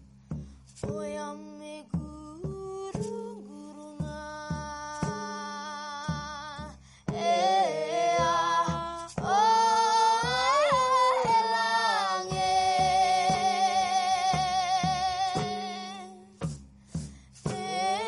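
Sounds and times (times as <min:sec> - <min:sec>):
light percussive knocks: 0:00.0 - 0:18.0
woman singing held notes: 0:17.4 - 0:18.0.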